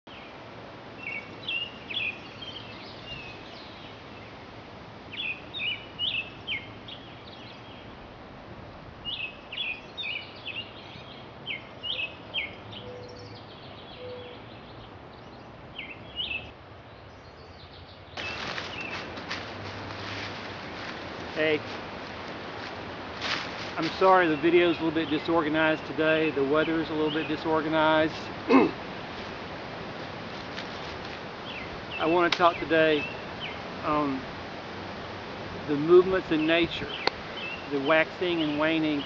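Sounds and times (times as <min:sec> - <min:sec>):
birds chirping: 0:00.1 - 0:08.1, 0:09.0 - 0:39.0
outdoor hiss: 0:00.1 - 0:39.0
rustling: 0:18.2 - 0:25.3, 0:28.0 - 0:32.6.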